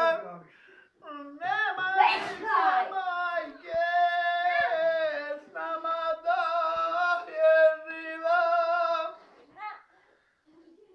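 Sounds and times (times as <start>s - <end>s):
man singing unaccompanied: 0.0s - 9.2s.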